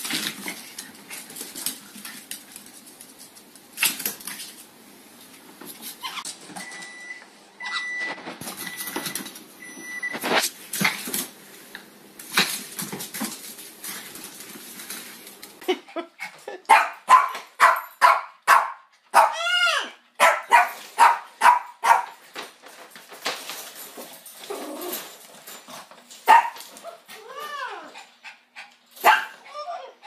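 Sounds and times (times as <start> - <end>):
small dog barking: 16.7 - 19.4, 20.2 - 22.1, 26.3 - 26.6, 29.0 - 29.4
dog yelp: 16.7 - 22.1, 26.3 - 26.6, 29.0 - 30.0.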